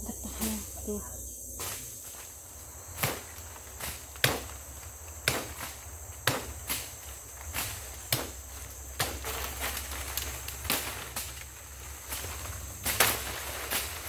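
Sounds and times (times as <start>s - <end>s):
forest insects droning: 0.0s - 14.0s
blade chopping woody stem: 3.0s - 4.6s, 5.2s - 8.4s, 9.0s - 9.5s.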